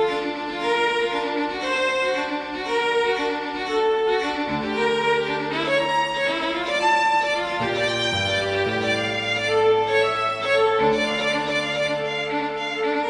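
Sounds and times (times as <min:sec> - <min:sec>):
slow violin melody: 0:00.0 - 0:13.0
low sustained strings: 0:04.2 - 0:13.0.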